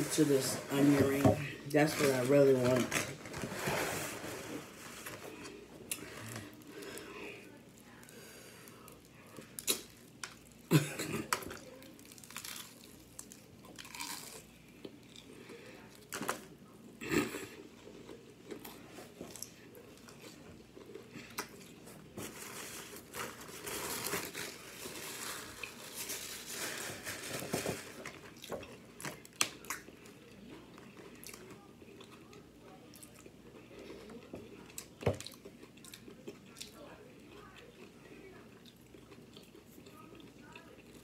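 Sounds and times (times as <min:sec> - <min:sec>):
crackly chewing: 0:11.3 - 0:41.0
onion ring crunching: 0:12.0 - 0:14.5.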